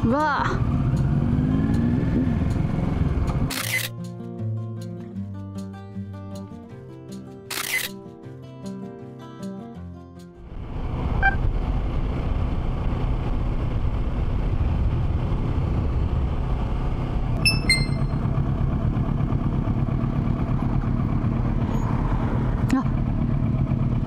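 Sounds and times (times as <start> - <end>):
motorcycle engine rumbling: 10.5 - 24.0
short high chirps: 17.4 - 18.2.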